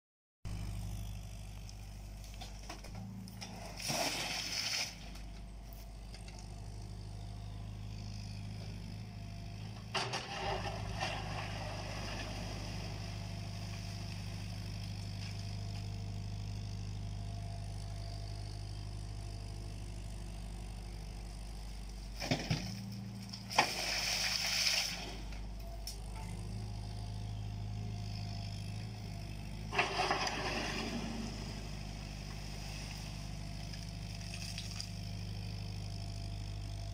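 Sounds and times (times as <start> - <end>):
diesel engine running: 0.5 - 36.9
excavator bucket scraping earth: 2.2 - 7.1, 8.0 - 16.7, 22.0 - 36.0
soil and stones into metal trailer: 2.4 - 5.5, 9.6 - 14.5, 22.2 - 26.3, 28.7 - 35.0.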